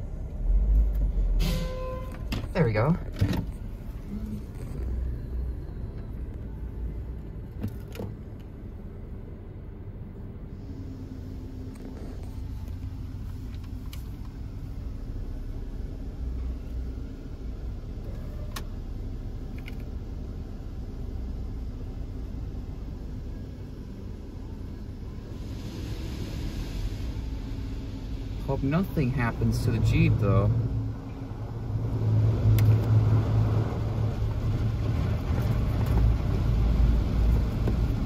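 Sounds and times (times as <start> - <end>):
steady hum: 2.0 - 18.1
car wash brushes rumbling: 23.8 - 38.0.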